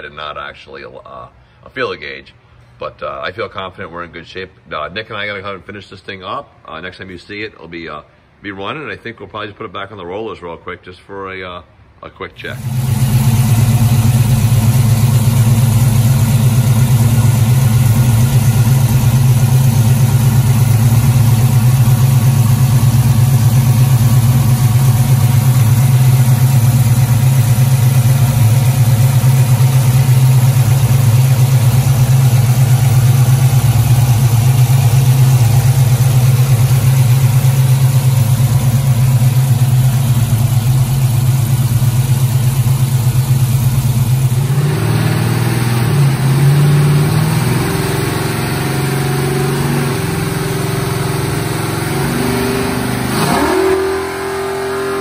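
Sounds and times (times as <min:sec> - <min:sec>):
engine idling: 0:12.5 - 0:53.3.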